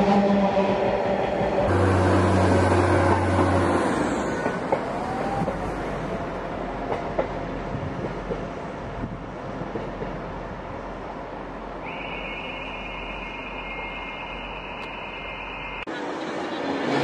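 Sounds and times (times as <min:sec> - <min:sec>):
diesel train engine drone: 0:00.0 - 0:17.0
train wheels clicking over rail joints: 0:01.4 - 0:10.6
train wheel squeal: 0:11.8 - 0:17.0.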